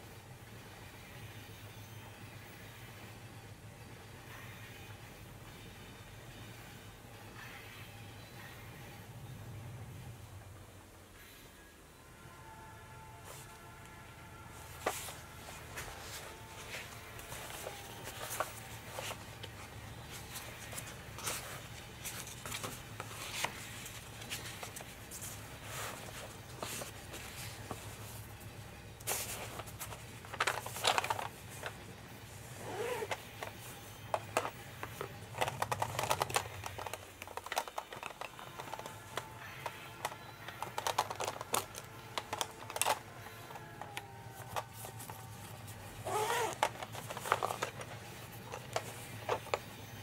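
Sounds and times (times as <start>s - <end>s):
low steady hum: 0.0s - 50.0s
rummaging in pencil case: 14.5s - 50.0s
paper pages rustling and flapping: 14.6s - 49.8s
pencil case unzipping: 29.1s - 31.7s, 32.5s - 33.6s, 34.2s - 39.2s, 40.4s - 49.6s.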